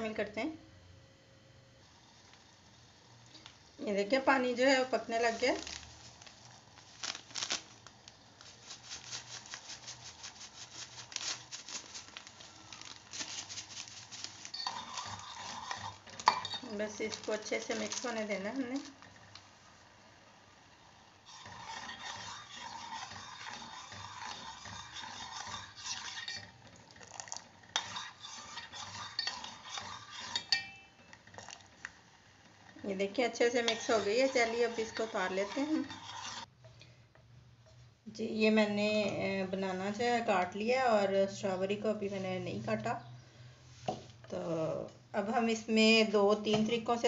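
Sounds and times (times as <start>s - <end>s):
powder poured into pot: 5.1s - 19.1s, 21.2s - 30.5s
metal spoon scraping pot: 13.3s - 18.2s, 21.3s - 31.5s, 33.3s - 36.5s.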